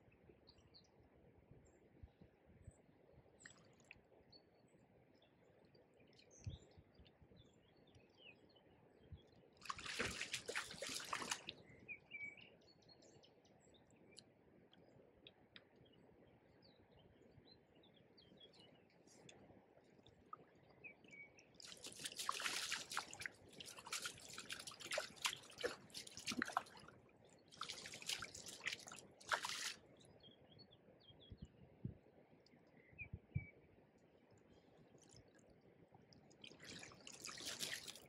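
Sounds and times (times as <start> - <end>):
fish splashing in a net: 9.6 - 11.5, 21.6 - 26.9, 27.5 - 29.8, 36.4 - 38.0
faint bird chirps: 11.2 - 14.3, 29.4 - 35.6.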